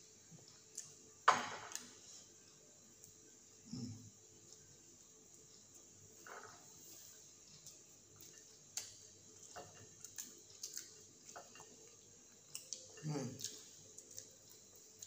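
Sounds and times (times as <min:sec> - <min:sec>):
person chewing: 0:07.6 - 0:15.0.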